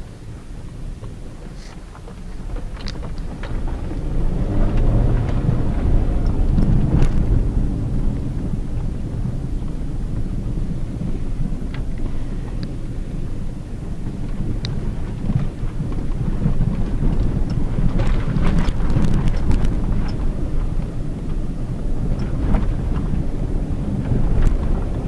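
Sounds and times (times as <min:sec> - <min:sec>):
engine and tyre rumble: 0:00.0 - 0:25.0
clicks and rattles: 0:01.0 - 0:04.1.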